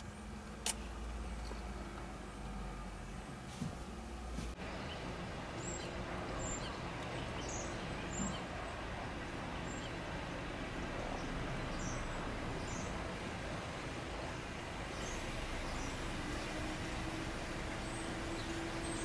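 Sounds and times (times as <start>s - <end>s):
vehicles idling drone: 0.0s - 4.6s, 14.7s - 19.0s.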